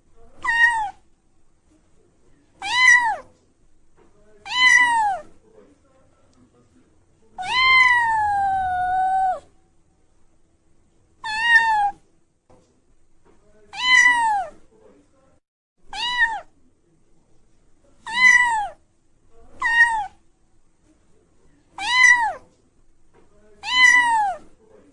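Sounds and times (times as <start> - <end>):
cat meowing: 0.4 - 1.0, 2.6 - 3.3, 4.4 - 5.3, 7.4 - 9.5, 11.2 - 12.0, 13.7 - 14.6, 15.9 - 16.5, 18.0 - 18.8, 19.6 - 20.2, 21.8 - 22.4, 23.6 - 24.4.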